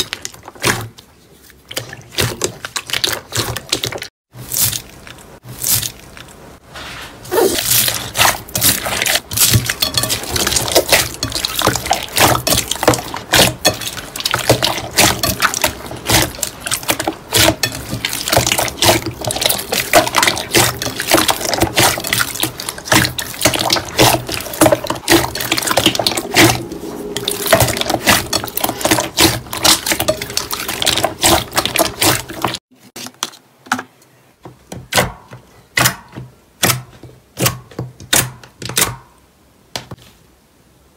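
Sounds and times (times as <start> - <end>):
slime squishing and crackling: 7.6 - 32.6.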